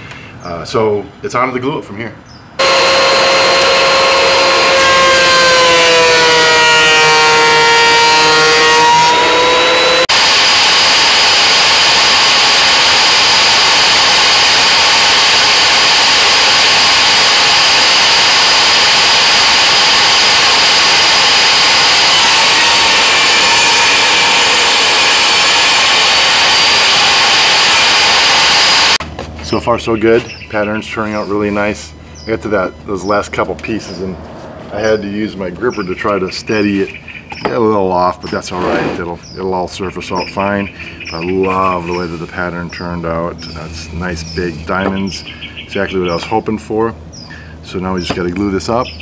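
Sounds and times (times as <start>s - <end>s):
thickness planer running: 2.6s - 29.5s
table saw whining: 2.6s - 29.6s.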